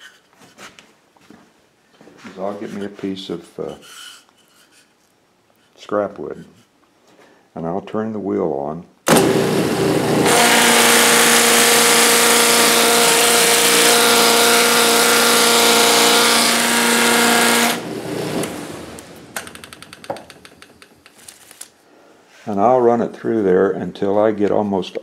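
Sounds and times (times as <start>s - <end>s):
motor hum: 9.1s - 20.6s
sanding wheel rasping on wood: 10.2s - 18.4s.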